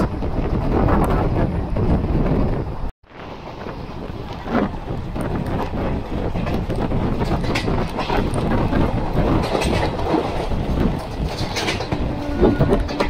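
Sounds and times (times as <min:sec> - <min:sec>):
train rumble: 0:00.0 - 0:13.0
wheels clattering on rails: 0:03.2 - 0:13.0.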